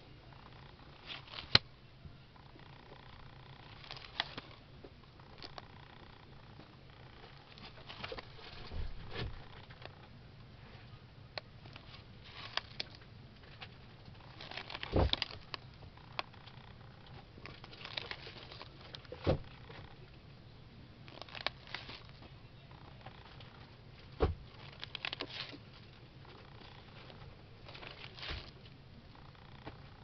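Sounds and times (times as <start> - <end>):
paper pages rustling: 7.2 - 9.6, 11.7 - 15.6, 17.4 - 19.9, 21.1 - 22.3, 24.5 - 25.8, 26.4 - 28.7
pages flipping thumps: 14.4 - 15.6, 17.6 - 19.8, 27.7 - 28.6.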